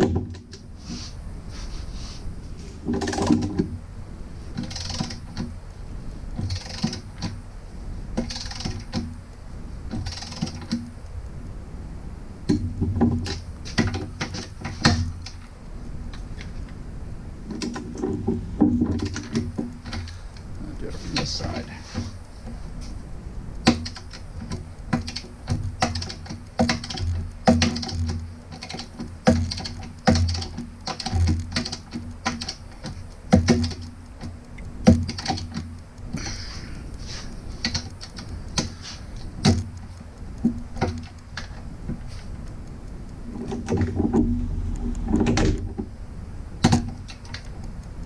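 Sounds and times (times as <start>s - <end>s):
hand ratchet clicking: 4.6s - 5.5s, 6.3s - 7.4s, 8.2s - 9.2s, 9.9s - 10.9s.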